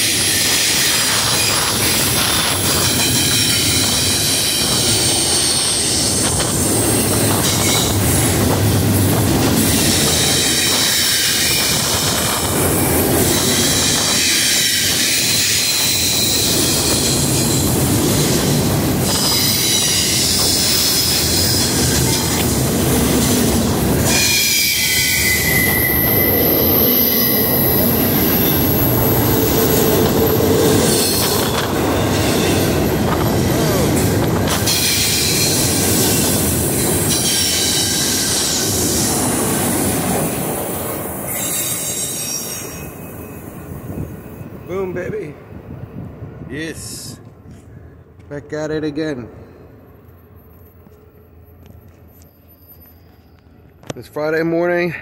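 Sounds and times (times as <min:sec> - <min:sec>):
train wheels squealing: 0:00.0 - 0:08.4, 0:09.6 - 0:12.3, 0:13.2 - 0:17.7, 0:19.0 - 0:22.4, 0:24.0 - 0:29.9, 0:30.8 - 0:32.8, 0:34.5 - 0:39.1, 0:41.1 - 0:44.8, 0:50.4 - 0:53.8.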